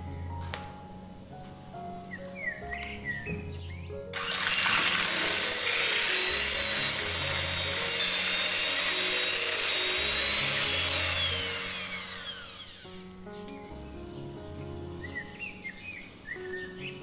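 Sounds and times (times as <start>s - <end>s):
background music: 0.0s - 17.0s
electric hand mixer whining: 4.1s - 13.1s.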